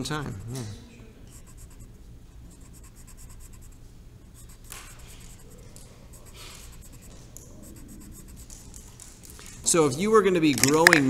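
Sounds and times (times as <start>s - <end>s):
colored pencil scratching on paper: 0.0s - 0.5s, 1.3s - 8.6s.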